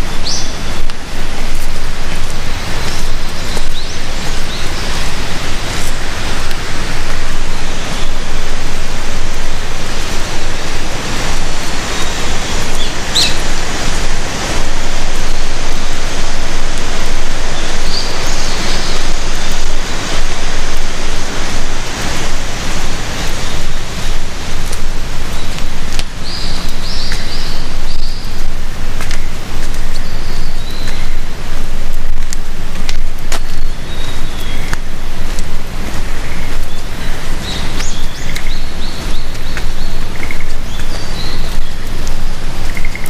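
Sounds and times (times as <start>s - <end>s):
bird chirps: 0.0s - 0.8s, 2.8s - 5.1s, 11.8s - 13.5s, 17.6s - 19.1s, 26.2s - 28.4s, 29.9s - 31.2s, 33.6s - 34.8s, 36.2s - 41.8s
water rushing: 0.0s - 43.0s.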